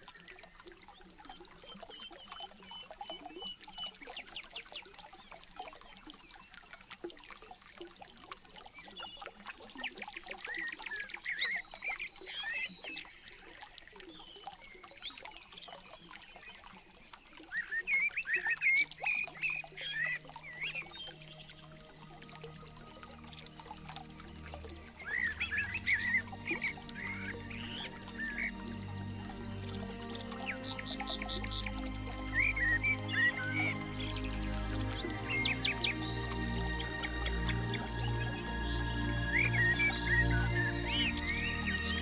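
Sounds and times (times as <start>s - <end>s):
stream trickling over rocks: 0.0s - 42.0s
birds chirping: 22.8s - 42.0s.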